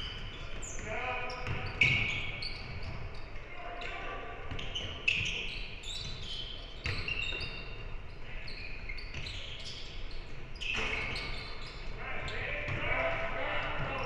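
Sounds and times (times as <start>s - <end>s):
sneakers squeaking: 0.0s - 14.0s
basketball bouncing: 1.4s - 2.0s.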